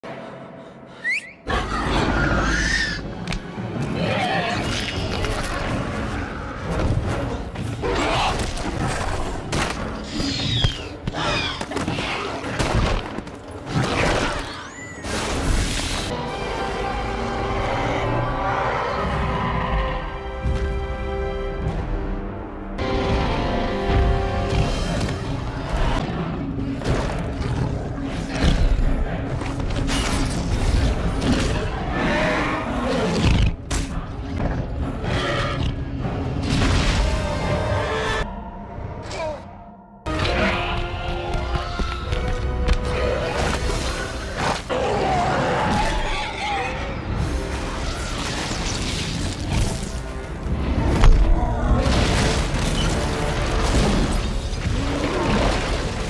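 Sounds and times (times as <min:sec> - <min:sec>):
film score music: 0:00.0 - 0:56.0
creature growls and roars: 0:01.5 - 0:03.1, 0:43.0 - 0:47.2, 0:53.7 - 0:56.0.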